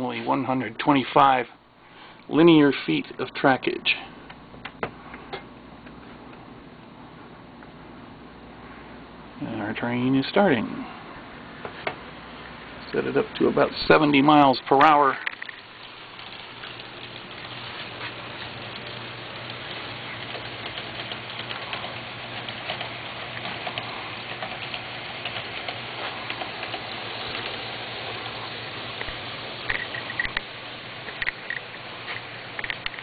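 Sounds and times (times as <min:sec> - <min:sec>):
model train wheels clicking on rails: 0:13.0 - 0:33.0.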